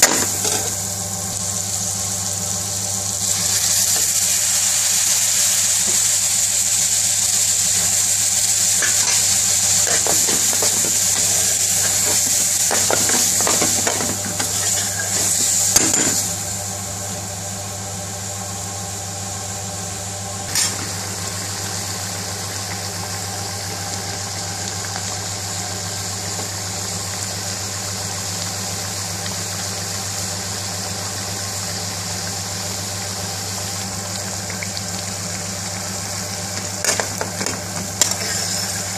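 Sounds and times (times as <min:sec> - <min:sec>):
sauce sizzling in a metal pan: 0:00.0 - 0:38.9
metal spoon scraping a pan: 0:08.8 - 0:16.2.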